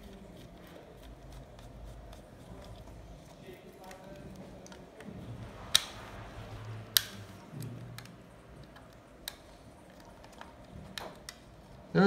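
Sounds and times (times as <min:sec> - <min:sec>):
handling and scraping: 0:00.0 - 0:11.9
sharp plastic clicks: 0:06.9 - 0:11.5.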